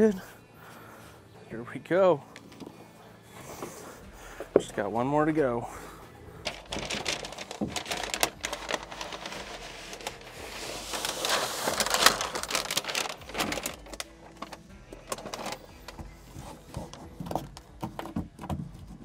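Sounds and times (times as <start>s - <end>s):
foam sheet crinkling and crackling: 6.4s - 17.6s.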